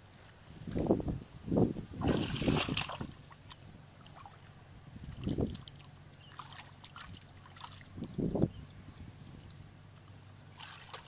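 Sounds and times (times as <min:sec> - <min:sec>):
hands splashing in muddy water: 0:02.0 - 0:04.5, 0:05.1 - 0:07.9, 0:10.5 - 0:11.0
small wet clicks: 0:02.8 - 0:08.2.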